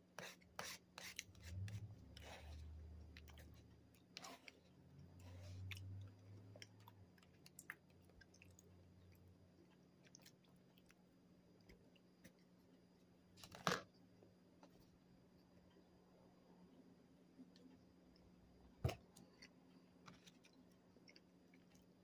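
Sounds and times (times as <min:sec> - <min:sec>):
chewing donut: 0:01.5 - 0:12.6.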